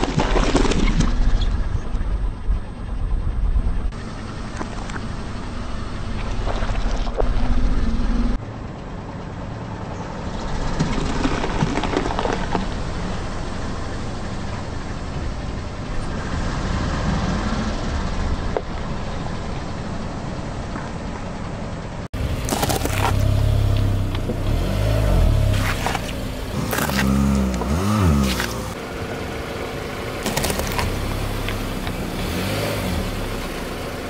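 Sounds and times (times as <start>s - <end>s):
car engine and tyres rumbling: 0.0s - 34.0s
peppers crackling under tyre: 10.6s - 13.7s, 22.2s - 28.8s, 29.9s - 32.7s.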